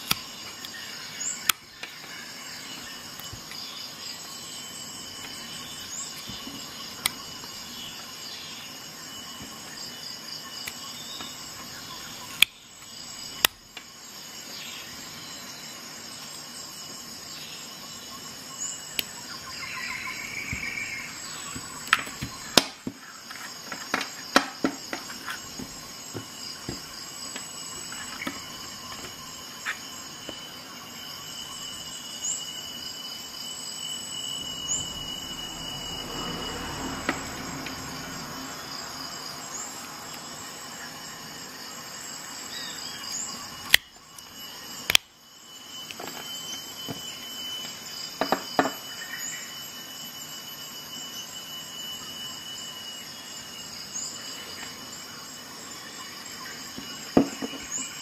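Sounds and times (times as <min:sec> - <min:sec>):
high-pitched pulsing tone: 0:33.2 - 0:38.5.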